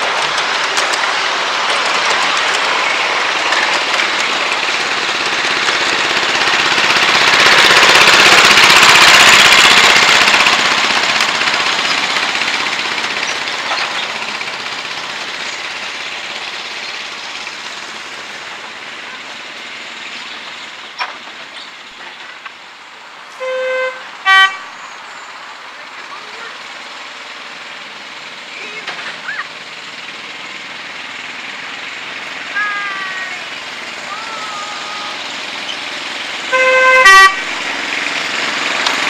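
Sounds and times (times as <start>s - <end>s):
miniature railway locomotive engine: 0.0s - 39.0s
wheels on the track: 0.0s - 39.0s
short horn toots: 23.4s - 24.7s, 36.5s - 37.5s.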